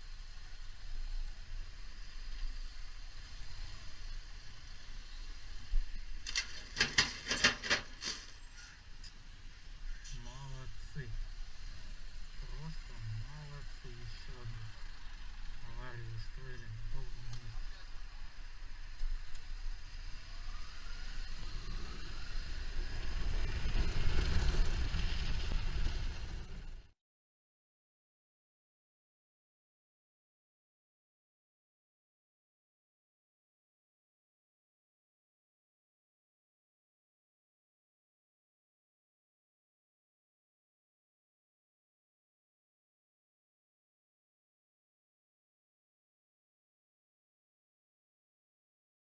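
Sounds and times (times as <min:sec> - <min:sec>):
motorcycle engine rumble: 0:00.1 - 0:26.9
motorcycle engine revving: 0:19.8 - 0:26.9.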